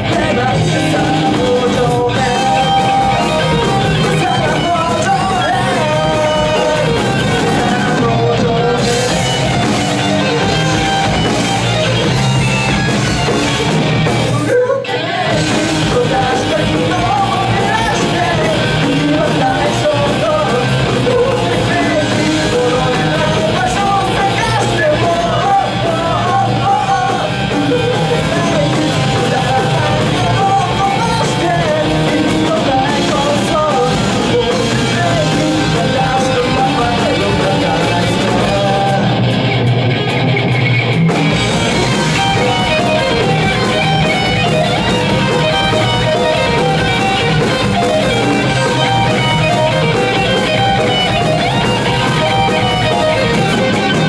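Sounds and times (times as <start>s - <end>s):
lead vocal singing: 0.0s - 10.6s, 14.2s - 39.5s
bass guitar: 0.0s - 54.0s
drum kit: 0.0s - 54.0s
electric guitars: 0.0s - 54.0s.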